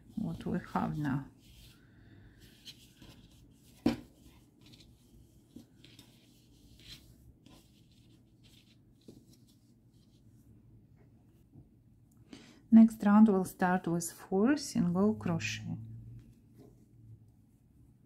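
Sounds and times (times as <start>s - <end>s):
hands rustling yarn toy: 0.0s - 11.7s, 16.2s - 18.0s.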